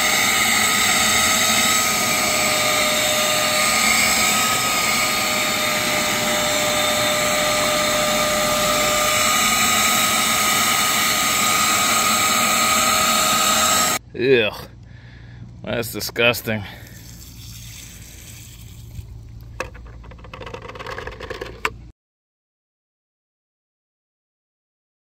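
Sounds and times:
nozzle sucking over damp carpet: 0.0s - 14.0s
wet vac motor whine: 0.0s - 14.0s.

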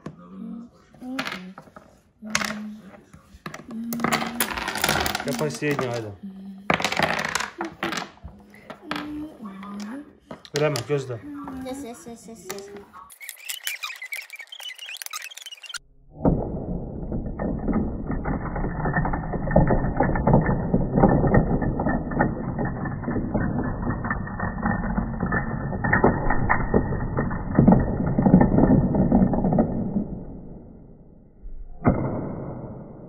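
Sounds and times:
domino knock: 3.4s - 9.2s, 17.0s - 30.6s
slowed dominoes toppling rattle: 3.5s - 15.8s, 16.8s - 30.7s.

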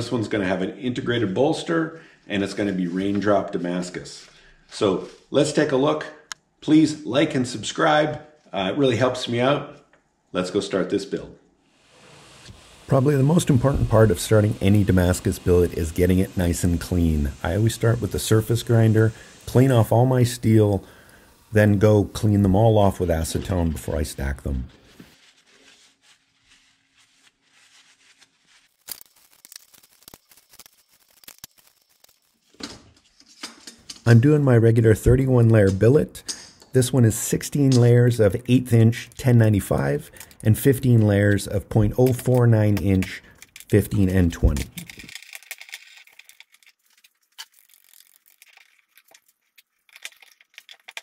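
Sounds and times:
paper towel wiping steel bar: 23.4s - 28.8s.

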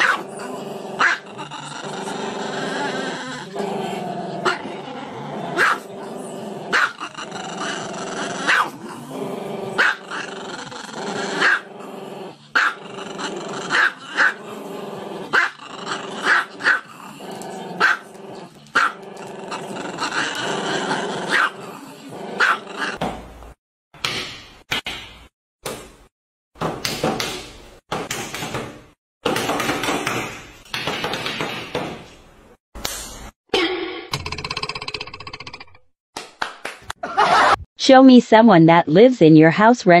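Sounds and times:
dog growling: 0.0s - 23.0s.

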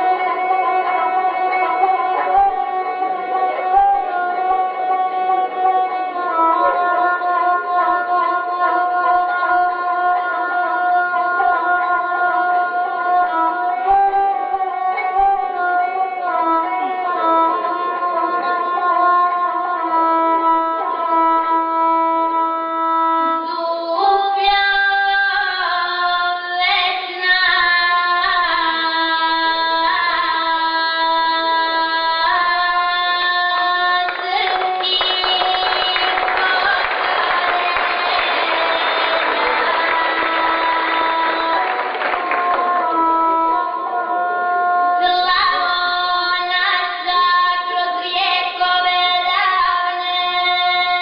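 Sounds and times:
bowed single-string fiddle: 0.0s - 24.5s
girl singing: 0.0s - 51.0s.

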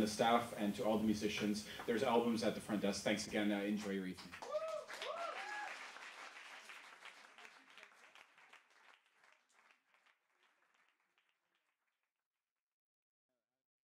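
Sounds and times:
audience applauding: 4.3s - 11.4s
person whooping: 4.4s - 5.9s.

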